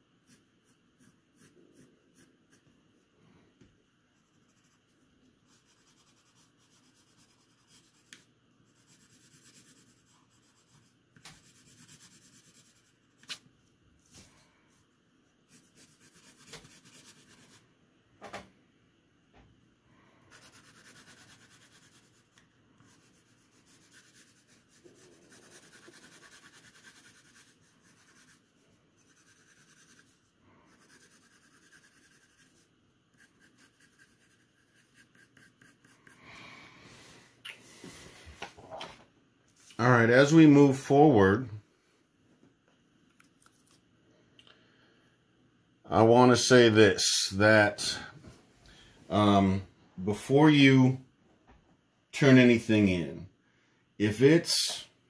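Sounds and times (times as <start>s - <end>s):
pencil scratching on paper: 0.2s - 2.8s, 4.1s - 13.4s, 15.4s - 17.6s, 20.3s - 36.2s.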